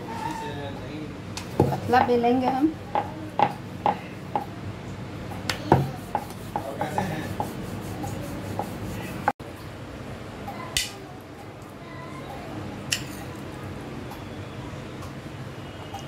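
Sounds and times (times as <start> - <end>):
rolling pin rolling dough: 5.7 - 9.3.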